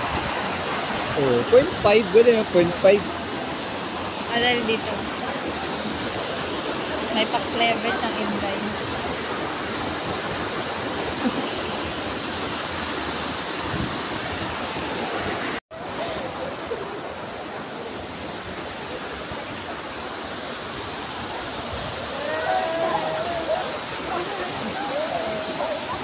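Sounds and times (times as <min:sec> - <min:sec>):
waterfall pouring into pool: 0:00.0 - 0:07.3, 0:18.7 - 0:26.0.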